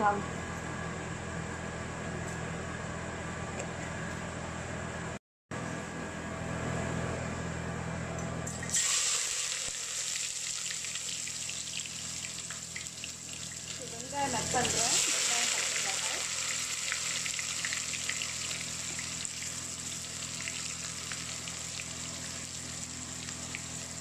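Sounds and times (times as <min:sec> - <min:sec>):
onions sizzling and crackling: 0:08.7 - 0:24.0
spices sizzling in oil: 0:08.7 - 0:24.0.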